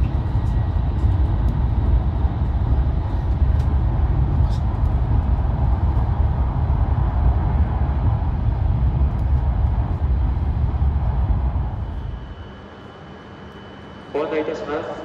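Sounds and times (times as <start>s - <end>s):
quiet hum with faint tone: 0.0s - 15.0s.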